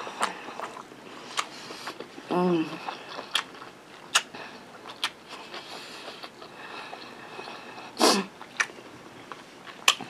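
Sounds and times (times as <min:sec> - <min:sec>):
chewing food: 0:00.0 - 0:10.0
wet mouth clicks and smacks: 0:04.1 - 0:04.3.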